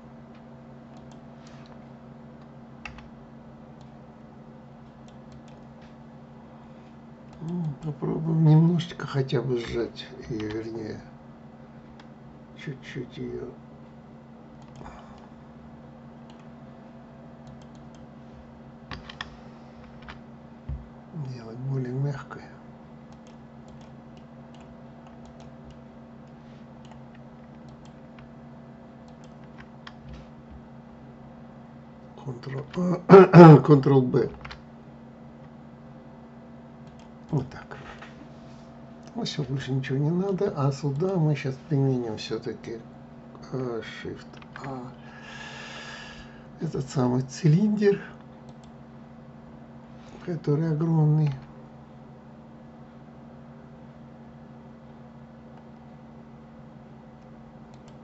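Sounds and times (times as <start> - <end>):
steady low hum: 0.0 - 58.0
computer mouse and keyboard clicks: 4.9 - 5.7, 14.6 - 14.9, 17.4 - 18.1, 18.9 - 20.2, 23.1 - 28.3, 29.0 - 30.2, 57.7 - 58.0.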